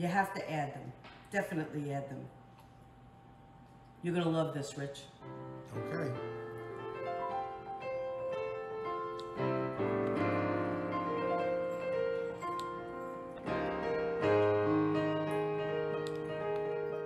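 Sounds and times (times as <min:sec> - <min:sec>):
piano music: 0:05.2 - 0:17.0.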